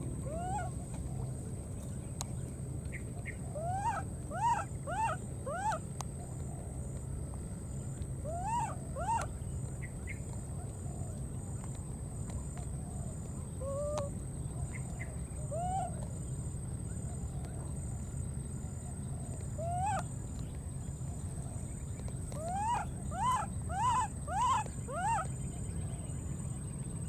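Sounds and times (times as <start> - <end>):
steady low rumble: 0.0 - 27.0
baby monkey crying: 3.6 - 5.8, 8.3 - 9.2, 22.4 - 25.3.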